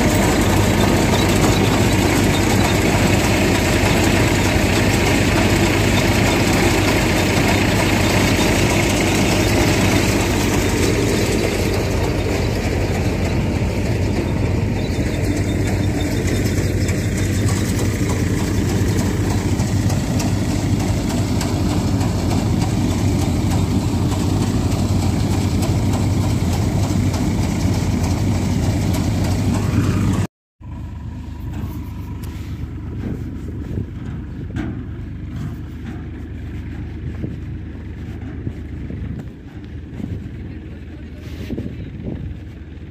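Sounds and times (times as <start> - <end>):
threshing machinery: 0.0 - 30.3
tractor engine hum: 0.0 - 42.9.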